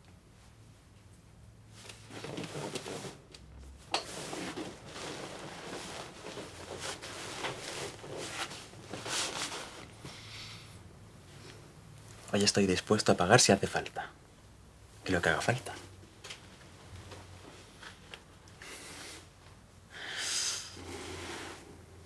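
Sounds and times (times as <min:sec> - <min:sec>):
bedcovers rustling: 0:01.7 - 0:10.2.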